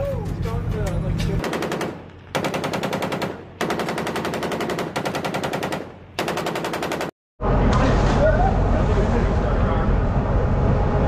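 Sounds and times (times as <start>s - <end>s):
machine gun firing automatic bursts: 1.4s - 7.1s.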